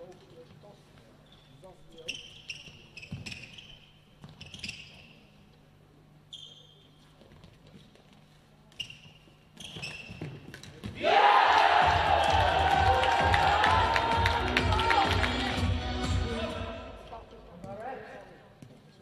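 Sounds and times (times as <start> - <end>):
short high-pitched squeaks: 8.8 - 10.3
crowd cheering and shouting: 11.0 - 16.7.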